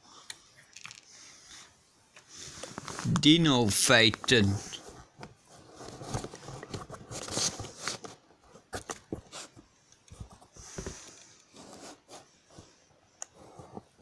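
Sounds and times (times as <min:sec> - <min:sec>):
paper pages rustling: 0:02.5 - 0:09.6.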